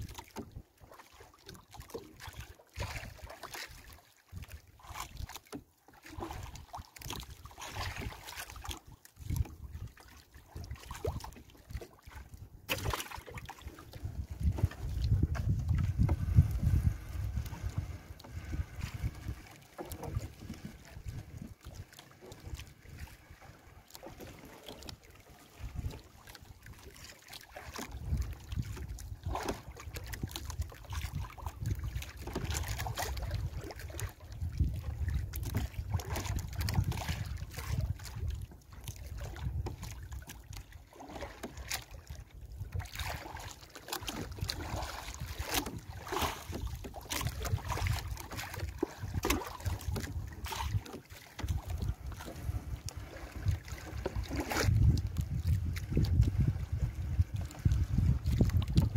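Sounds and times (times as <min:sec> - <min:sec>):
wind rumble on microphone: 0:09.2 - 0:10.0, 0:13.5 - 0:23.5, 0:24.8 - 0:26.9, 0:27.7 - 0:40.8, 0:44.1 - 0:58.9.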